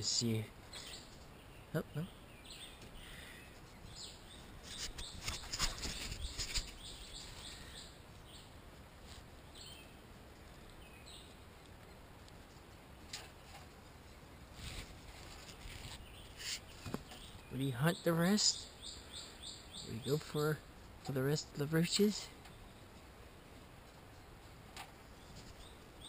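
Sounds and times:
small birds chirping: 0:00.0 - 0:26.0
rustling and light clicks: 0:04.6 - 0:07.4, 0:11.6 - 0:17.4, 0:22.4 - 0:25.9.

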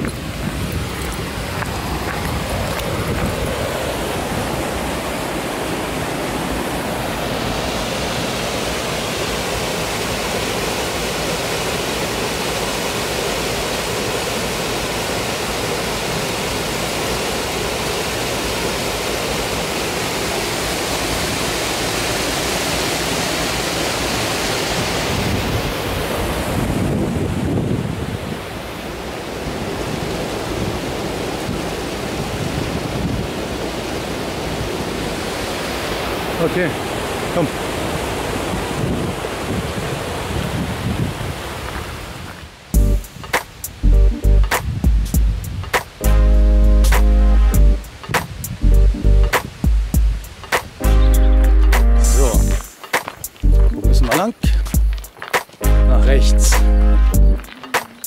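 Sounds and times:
creek rushing over rocks: 0:00.0 - 0:43.8, 0:49.4 - 0:58.0.

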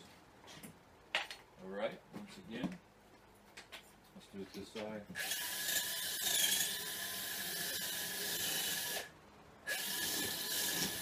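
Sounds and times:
electric drill whining: 0:05.2 - 0:09.1, 0:09.7 - 0:11.0.

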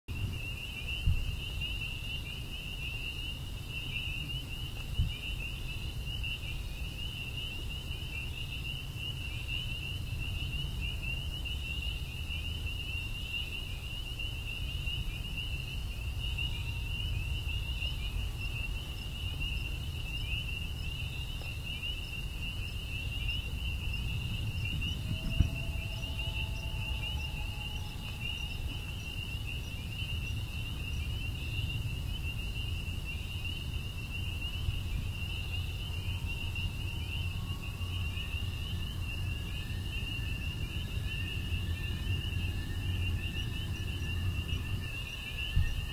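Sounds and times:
crickets chirping: 0:00.1 - 0:45.9
faint held tones: 0:23.8 - 0:29.9.

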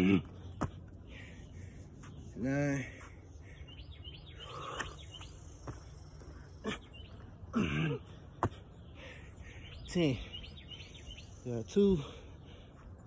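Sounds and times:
man breathing: 0:00.3 - 0:05.2, 0:08.1 - 0:09.8, 0:11.9 - 0:13.0.

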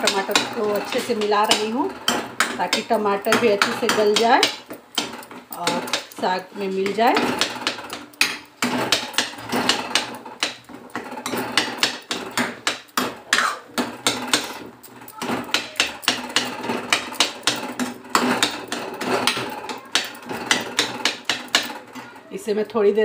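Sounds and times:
metal ladle scraping metal pan: 0:00.0 - 0:22.3.

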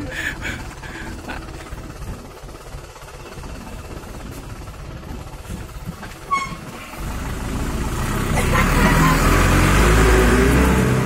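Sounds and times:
diesel truck engine running: 0:00.0 - 0:11.0
short high squeak: 0:06.3 - 0:06.7.

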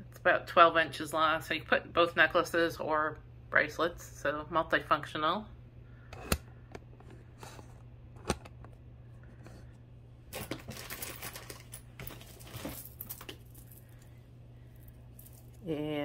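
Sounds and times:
jewelry clicking and clinking: 0:10.3 - 0:15.7
rustling: 0:10.4 - 0:15.7.

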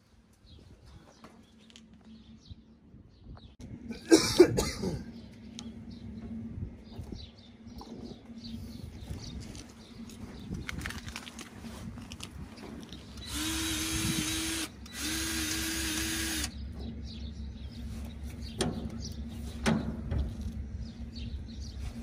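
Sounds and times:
person coughing: 0:03.9 - 0:05.1.

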